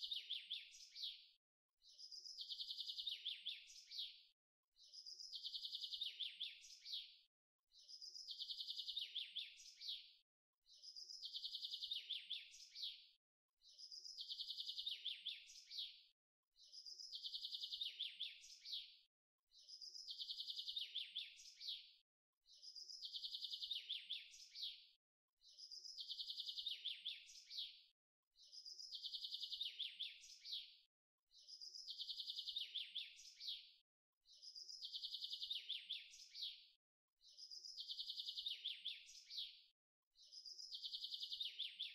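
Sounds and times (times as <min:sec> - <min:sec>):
sparrow chirping: 0:28.4 - 0:30.7, 0:34.3 - 0:36.6, 0:37.2 - 0:39.6, 0:40.2 - 0:41.9.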